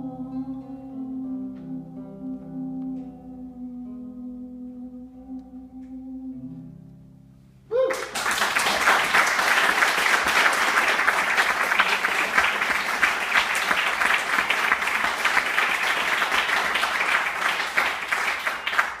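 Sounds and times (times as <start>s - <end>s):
audience applauding: 7.8s - 19.0s.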